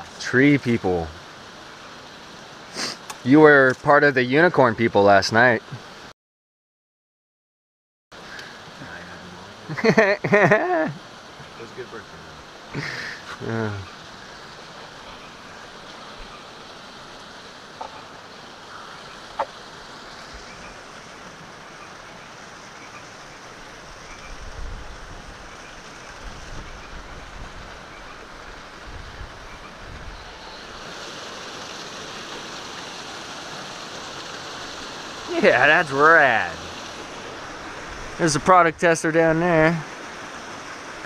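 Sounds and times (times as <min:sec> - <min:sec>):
river rapids rushing: 0:30.3 - 0:38.5.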